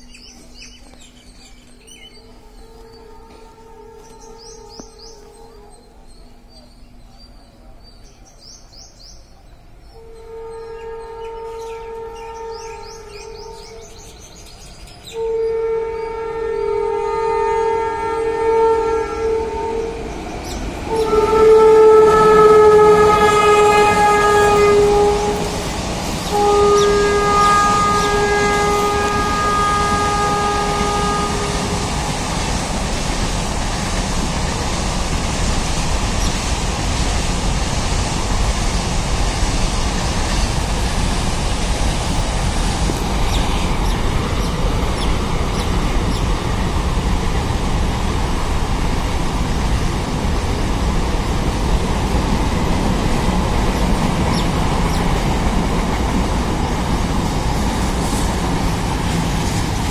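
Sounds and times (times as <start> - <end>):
freight train wagons rolling past: 0.0 - 59.9
locomotive horn long note: 0.4 - 7.0, 9.8 - 14.2, 15.0 - 32.7.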